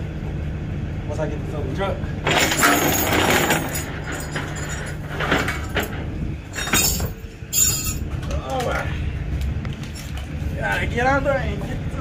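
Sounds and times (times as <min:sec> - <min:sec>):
low steady rumble: 0:00.0 - 0:12.0
steel chain rattling and clinking: 0:02.2 - 0:08.1.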